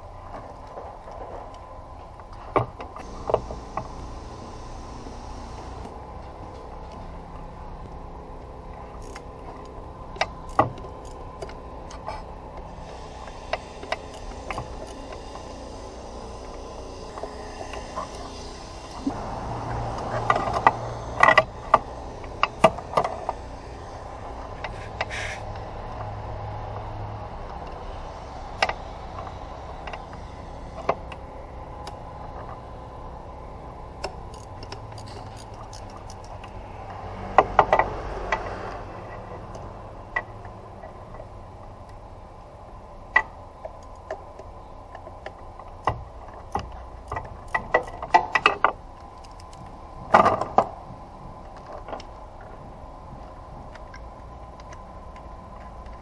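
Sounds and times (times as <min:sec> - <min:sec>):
steady low hum: 0:00.0 - 0:56.0
ratchet clicking: 0:08.9 - 0:12.0, 0:12.7 - 0:26.1, 0:27.5 - 0:31.2, 0:34.0 - 0:39.6.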